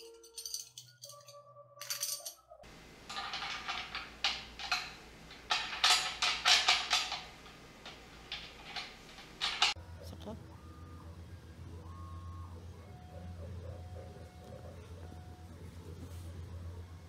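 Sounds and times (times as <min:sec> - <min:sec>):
small metal parts clinking: 0:00.0 - 0:09.8.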